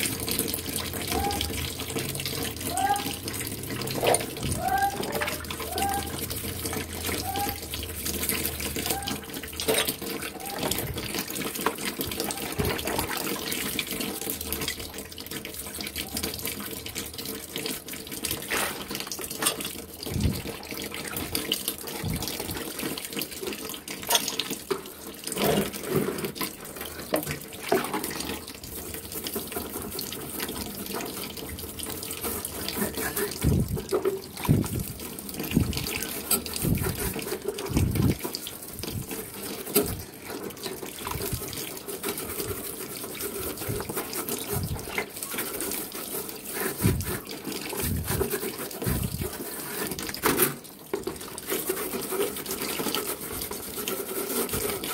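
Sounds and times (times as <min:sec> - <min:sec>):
scrub brush sloshing in bucket: 0:00.0 - 0:54.9
water splashes: 0:00.0 - 0:54.9
brush scrubbing wire fan guard: 0:18.4 - 0:22.6, 0:25.3 - 0:54.9.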